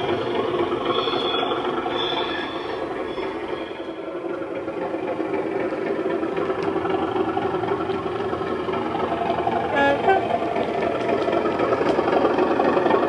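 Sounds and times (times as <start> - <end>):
diesel engine sound: 0.0 - 13.0
two-tone horn blast: 9.7 - 10.3.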